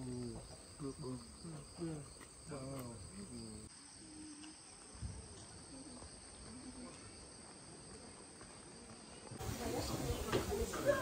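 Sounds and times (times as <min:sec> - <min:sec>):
high insect drone: 0:00.0 - 0:11.0
faint distant voices: 0:07.9 - 0:11.0.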